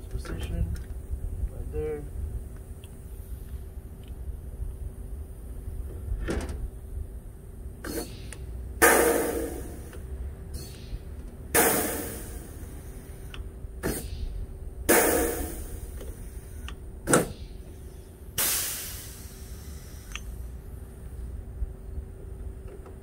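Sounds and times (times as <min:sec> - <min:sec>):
air exhaust hiss: 0:00.0 - 0:22.6
rivet gun pops: 0:16.7 - 0:17.4.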